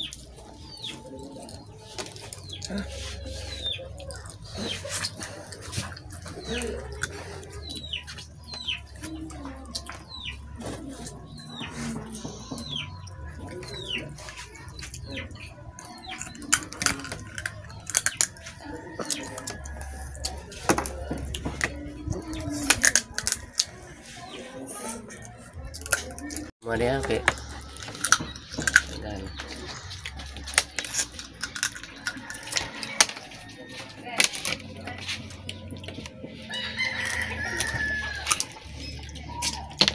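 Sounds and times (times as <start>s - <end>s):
person chewing: 0.0s - 24.0s, 27.2s - 39.9s
crab shells cracking: 15.9s - 21.0s, 22.6s - 23.8s, 27.2s - 33.6s, 36.0s - 39.9s.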